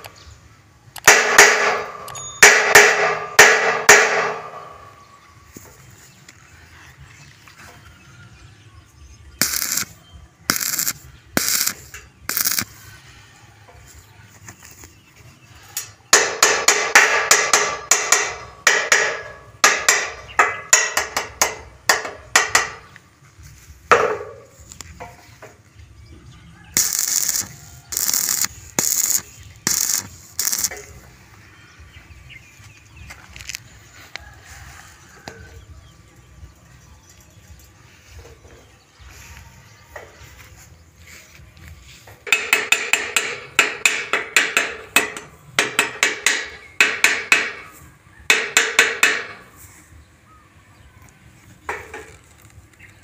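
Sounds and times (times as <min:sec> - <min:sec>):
sharp metallic knocks: 0:01.0 - 0:05.2, 0:15.8 - 0:23.0, 0:23.9 - 0:25.6, 0:42.1 - 0:47.7, 0:48.3 - 0:49.5
ringing metal hit: 0:01.1 - 0:05.3
crackling welding bursts: 0:09.4 - 0:13.0, 0:26.7 - 0:31.3.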